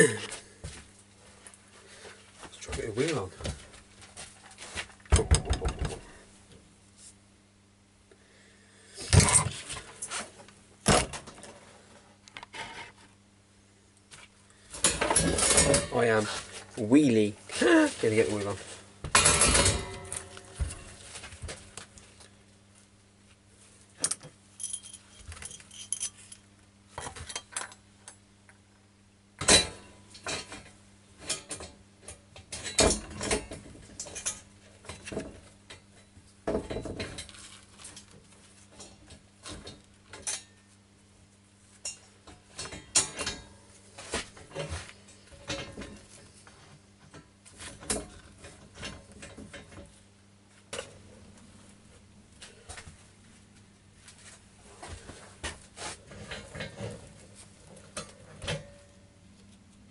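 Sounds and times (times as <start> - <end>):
metallic clinks of tools: 24.6 - 26.4.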